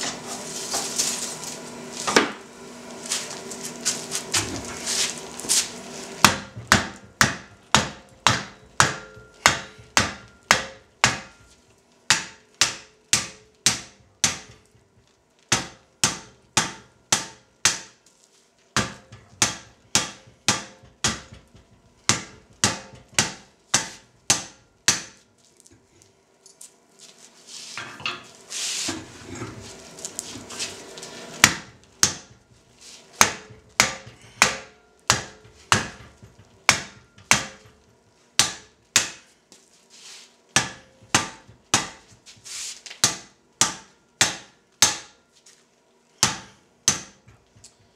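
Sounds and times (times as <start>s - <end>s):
hammer striking hot steel: 6.2s - 18.0s, 18.8s - 25.3s, 31.0s - 39.3s, 40.6s - 42.4s, 43.0s - 45.2s, 46.2s - 47.9s.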